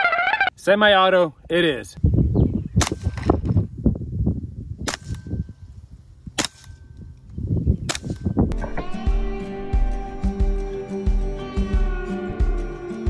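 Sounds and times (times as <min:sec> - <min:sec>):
air rifle shots: 0:04.8 - 0:05.4, 0:06.3 - 0:06.8, 0:07.9 - 0:08.3.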